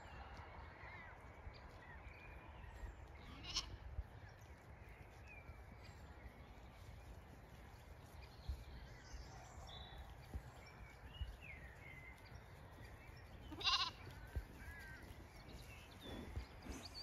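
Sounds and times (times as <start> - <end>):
birds singing faintly: 0.0 - 17.0
lamb bleating: 3.2 - 3.8, 13.5 - 14.1.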